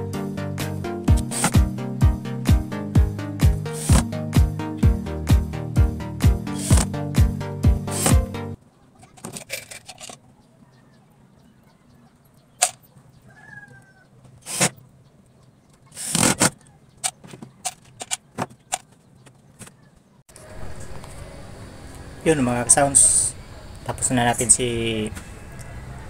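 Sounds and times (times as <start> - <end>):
faint chirp: 10.2 - 17.6.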